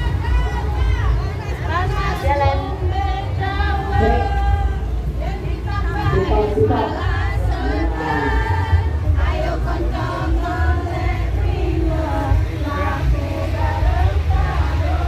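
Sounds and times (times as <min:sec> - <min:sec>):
steady low rumble: 0:00.0 - 0:15.0
women singing and chanting: 0:00.0 - 0:15.0.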